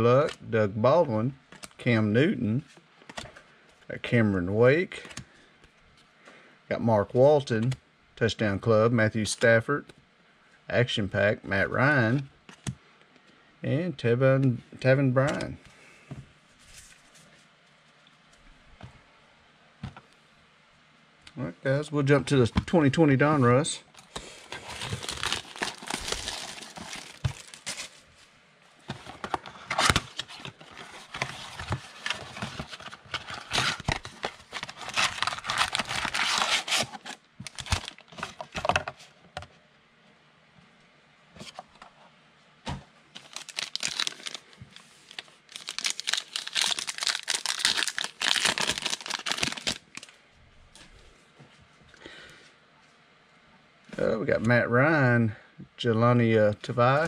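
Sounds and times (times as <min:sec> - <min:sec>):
paper and plastic tearing: 0:24.4 - 0:28.0, 0:28.9 - 0:38.5, 0:43.2 - 0:50.1
wrappers crinkling: 0:24.4 - 0:28.2, 0:29.0 - 0:38.2, 0:43.2 - 0:50.2.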